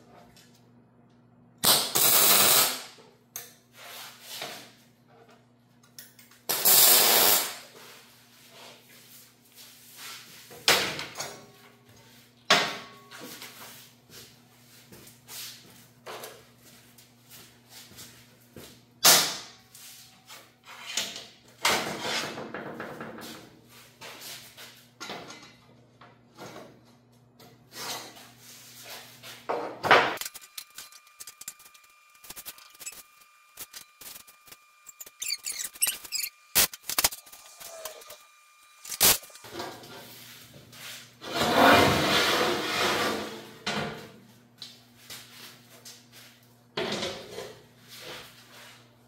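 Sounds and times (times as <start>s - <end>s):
steady high whine: 30.2s - 39.7s.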